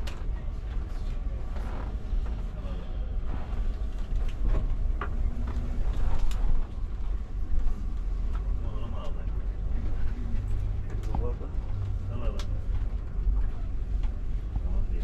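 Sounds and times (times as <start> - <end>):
bus engine and road rumble: 0.0 - 15.0
bus interior creaks and rattles: 0.0 - 15.0.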